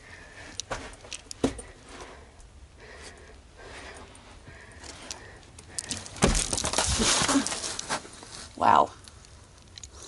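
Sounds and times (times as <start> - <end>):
head thumping into wall: 6.2 - 6.6
shuffling in sand: 6.6 - 8.6.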